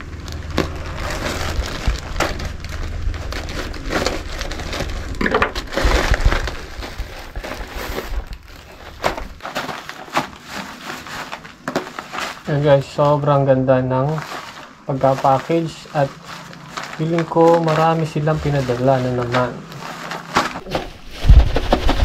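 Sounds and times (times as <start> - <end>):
plastic mailer bag crinkling: 0.0 - 22.0
scissors cutting plastic: 0.3 - 12.6.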